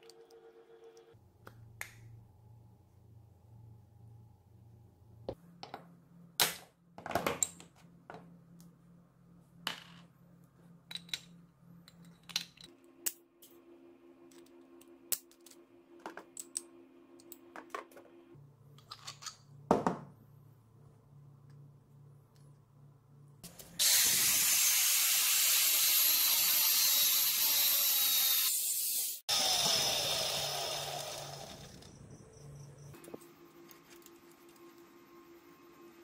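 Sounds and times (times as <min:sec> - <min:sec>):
metal parts clicking and clinking: 0:10.9 - 0:12.7.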